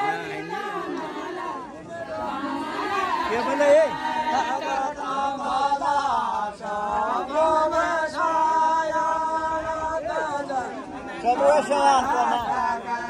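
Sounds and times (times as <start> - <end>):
women singing in chorus: 0.0 - 13.0.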